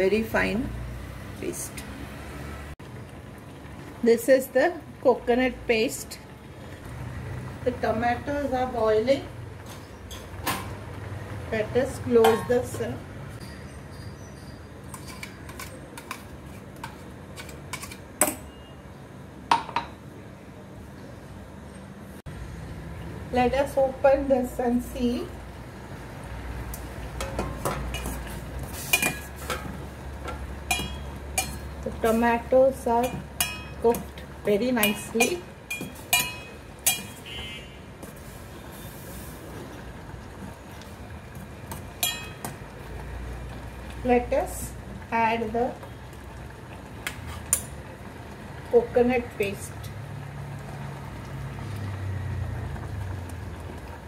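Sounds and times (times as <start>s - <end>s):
pot boiling on gas flame: 0.0s - 54.0s
spoon scraping a steel jar: 13.4s - 15.8s
spoon clinking on steel pot: 30.3s - 32.1s, 33.0s - 34.2s, 34.8s - 37.3s, 42.0s - 42.6s.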